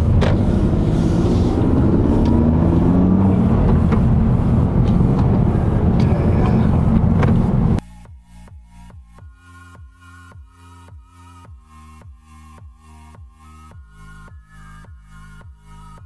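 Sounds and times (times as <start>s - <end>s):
car engine accelerating: 0.0s - 7.8s
background music: 0.0s - 16.0s.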